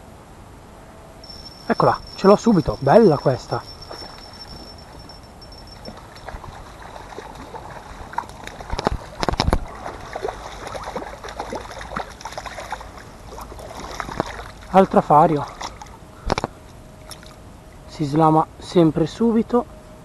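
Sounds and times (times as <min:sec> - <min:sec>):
fish splashing in water: 0:03.7 - 0:14.8, 0:15.4 - 0:17.4.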